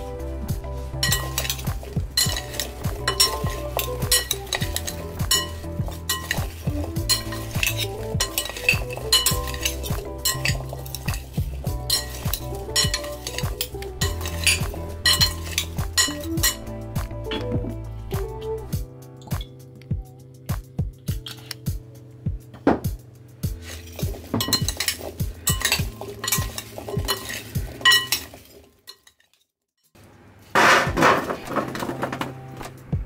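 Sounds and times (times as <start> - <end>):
spoon clinking and scraping glass: 0.9 - 16.7, 21.1 - 21.6, 23.6 - 29.4.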